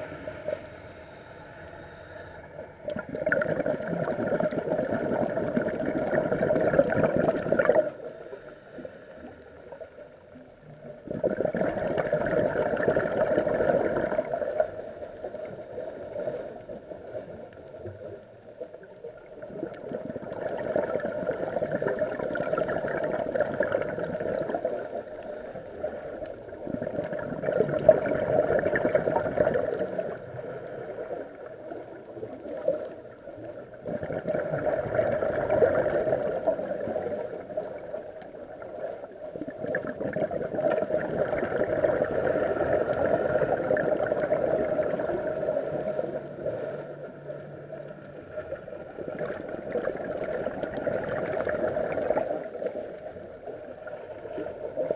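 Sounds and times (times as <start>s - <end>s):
regulator breathing underwater: 0.0s - 5.7s, 6.3s - 10.3s, 24.4s - 26.8s, 41.8s - 48.7s
gurgling exhaled bubbles: 0.0s - 8.4s, 10.4s - 54.9s.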